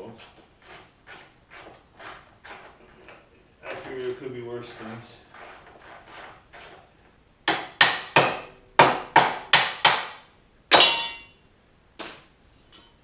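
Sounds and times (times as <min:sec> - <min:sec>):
hammer striking metal: 0:07.5 - 0:11.3.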